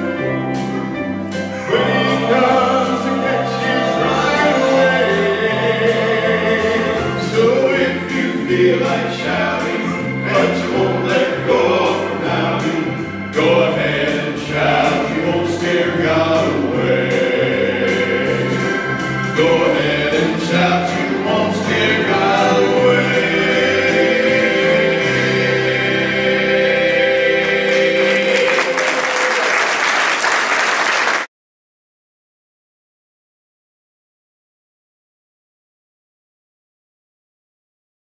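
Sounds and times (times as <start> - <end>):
gospel group singing with band: 0.6 - 29.2
audience applause: 27.4 - 31.3.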